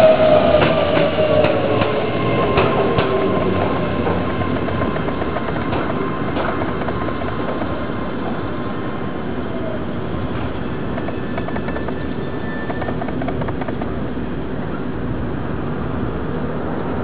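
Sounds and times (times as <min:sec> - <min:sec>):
train wheels rumbling: 0:00.0 - 0:15.8.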